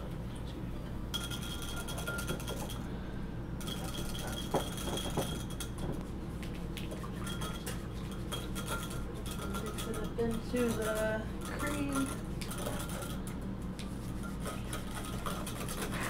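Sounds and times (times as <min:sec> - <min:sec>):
steady low hum: 0:00.0 - 0:16.0
whisk clinking on glass: 0:01.1 - 0:02.9, 0:03.6 - 0:05.9, 0:07.1 - 0:13.4.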